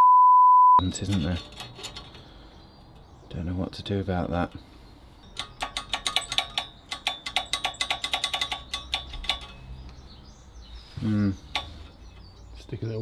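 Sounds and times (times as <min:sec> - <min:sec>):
steel grate clicking and ringing: 0:00.8 - 0:03.2, 0:05.2 - 0:10.0, 0:11.5 - 0:12.4.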